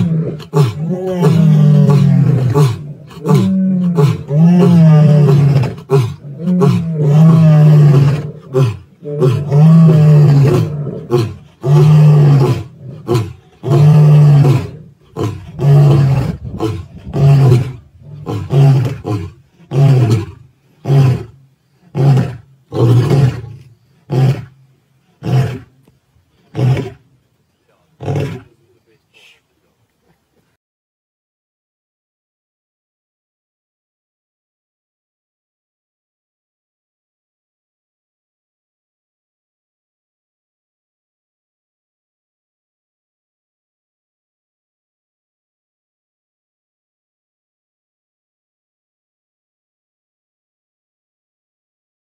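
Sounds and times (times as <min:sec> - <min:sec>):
lion roaring and grunting: 0:00.0 - 0:24.6, 0:25.2 - 0:25.7, 0:26.4 - 0:27.0, 0:28.0 - 0:28.6.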